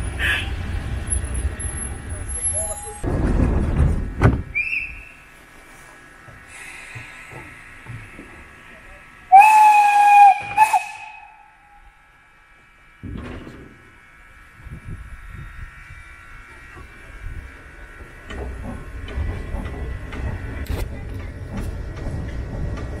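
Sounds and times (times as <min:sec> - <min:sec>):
train wheels clanking on rails: 0:00.0 - 0:04.7, 0:16.4 - 0:23.0
train carriages jolting: 0:01.4 - 0:04.8.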